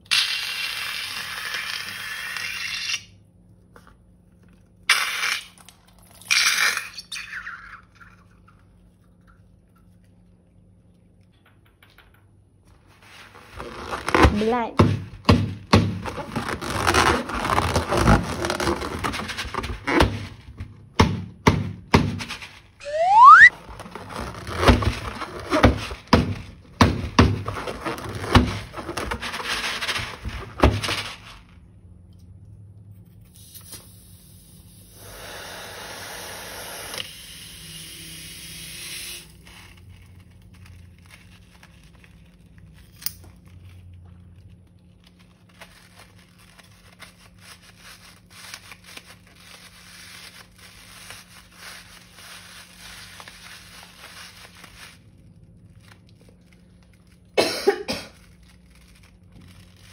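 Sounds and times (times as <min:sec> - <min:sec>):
slime and balloons crackling: 0:13.0 - 0:14.8, 0:15.7 - 0:20.5, 0:22.6 - 0:31.3, 0:43.5 - 0:57.4, 0:58.0 - 0:59.9
short rising squeak: 0:22.8 - 0:23.5.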